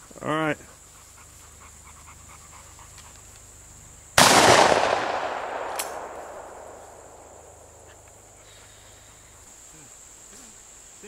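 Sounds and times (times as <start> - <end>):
shotgun shot: 4.2 - 7.6
sharp click: 5.7 - 6.1.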